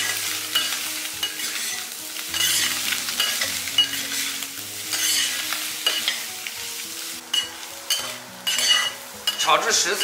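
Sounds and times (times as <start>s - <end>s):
food sizzling in hot oil: 0.0s - 10.0s
metal spoon scraping pot: 2.4s - 4.3s, 4.9s - 6.2s
spoon clinking on pot: 4.9s - 6.2s, 7.3s - 9.6s.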